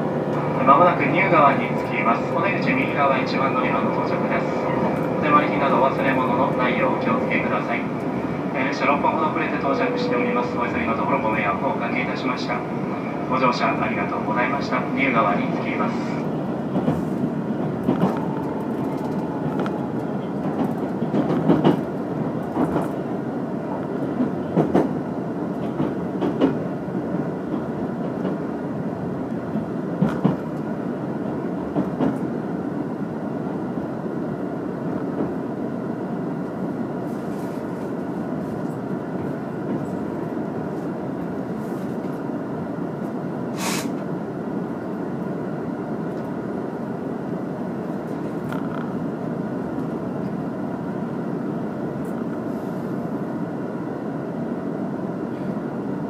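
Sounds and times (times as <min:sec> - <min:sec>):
train rumble inside carriage: 0:00.0 - 0:56.0
sharp hiss: 0:43.6 - 0:44.0.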